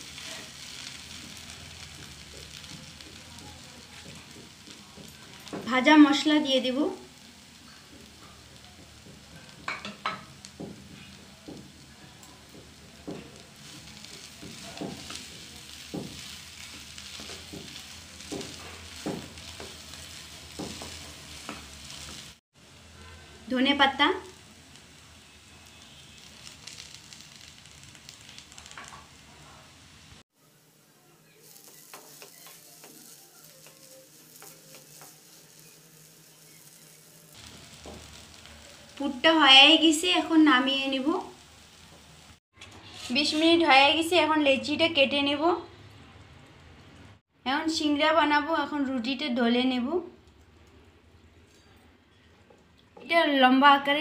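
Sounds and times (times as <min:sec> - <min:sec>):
light sizzle: 0:00.0 - 0:54.0
spatula stirring in a pan: 0:07.2 - 0:22.4, 0:25.4 - 0:29.3, 0:30.6 - 0:39.0, 0:41.6 - 0:43.6
wooden spatula knocking and scraping: 0:12.5 - 0:19.8, 0:20.5 - 0:21.7.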